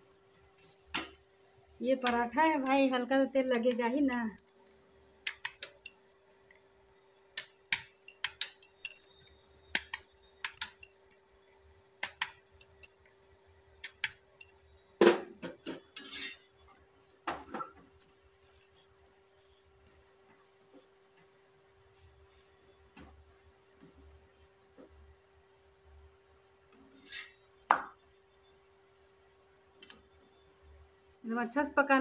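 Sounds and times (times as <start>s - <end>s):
glass bangles clinking: 0.0s - 1.4s, 2.0s - 4.5s, 5.1s - 6.4s, 7.4s - 11.3s, 11.9s - 13.1s, 13.8s - 14.8s, 15.4s - 16.8s, 17.4s - 21.7s, 27.0s - 28.0s.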